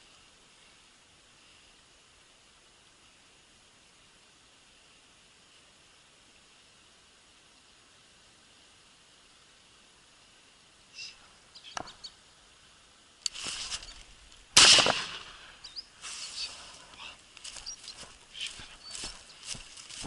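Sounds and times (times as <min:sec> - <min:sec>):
bird chirps: 0:10.9 - 0:12.2, 0:15.6 - 0:16.6, 0:17.5 - 0:19.5
brief rustle: 0:13.2 - 0:15.2
shotgun shot: 0:14.6 - 0:15.5.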